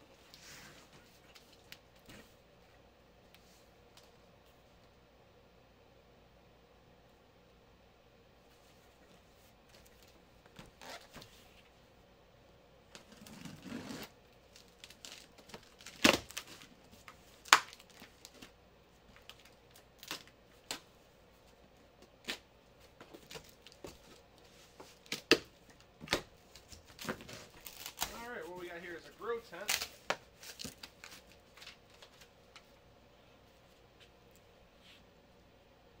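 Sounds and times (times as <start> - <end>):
packing tape tearing: 13.0 - 18.5, 19.1 - 20.9, 25.0 - 28.3, 29.6 - 32.1
cardboard flaps rustling: 22.3 - 28.6.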